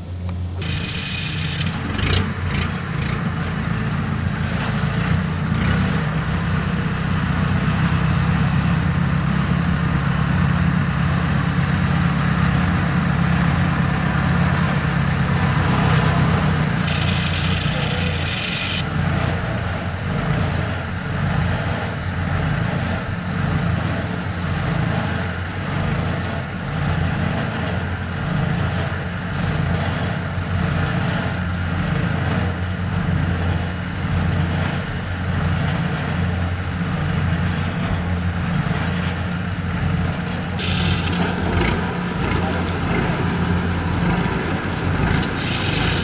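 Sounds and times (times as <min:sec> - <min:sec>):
diesel engine running: 0:00.0 - 0:46.0.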